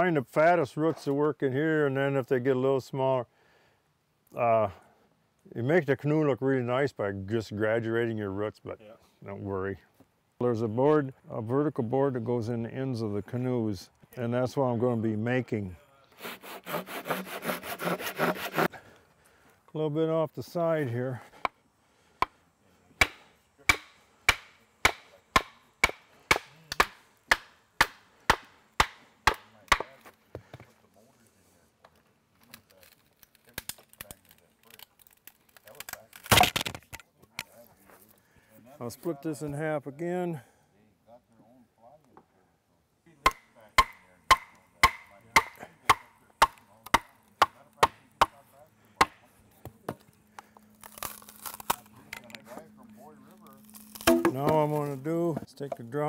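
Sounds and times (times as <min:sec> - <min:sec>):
wooden club striking froe: 0:43.2 - 0:48.4, 0:53.9 - 0:54.8.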